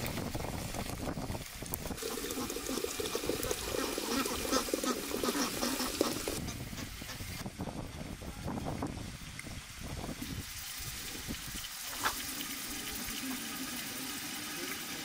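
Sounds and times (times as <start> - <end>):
water pouring into teapot: 0.5 - 6.4, 10.2 - 15.0.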